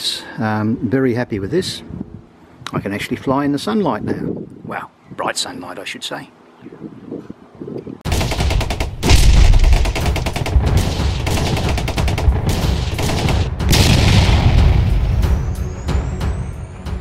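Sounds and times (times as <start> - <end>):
rapid sharp bangs: 8.1 - 15.1
deep boom: 8.1 - 15.6.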